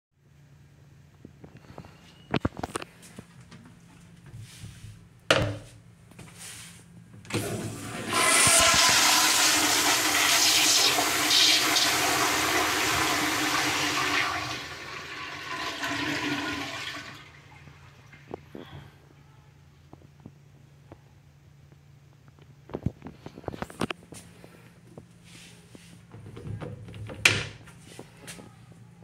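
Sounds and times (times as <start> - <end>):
toilet flushing: 7.3 - 18.3.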